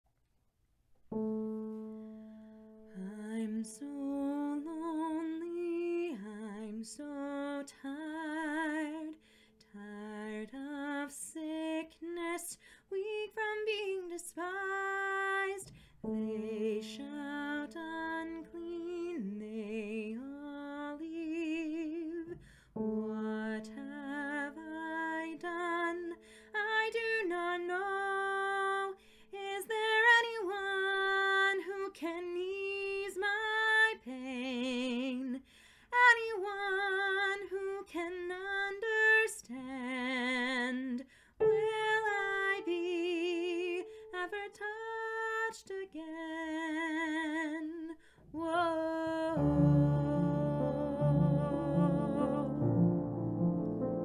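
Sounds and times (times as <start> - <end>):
piano chords: 1.1 - 3.0, 49.3 - 54.0
woman singing a ballad: 2.9 - 53.1.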